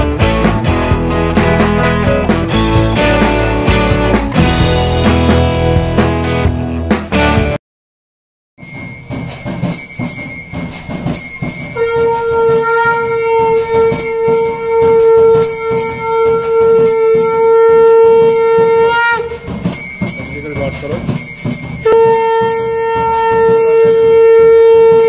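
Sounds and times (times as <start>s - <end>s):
bells ringing: 8.6s - 25.0s
conch shell blown: 11.8s - 19.5s, 21.8s - 25.0s.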